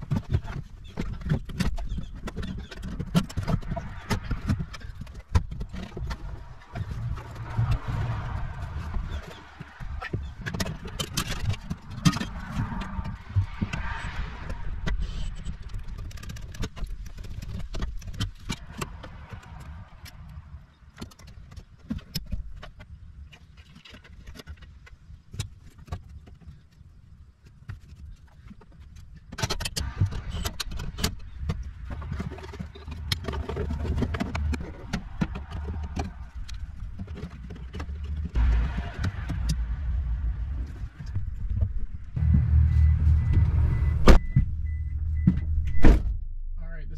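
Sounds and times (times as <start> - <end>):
low rumble: 37.9 - 46.9.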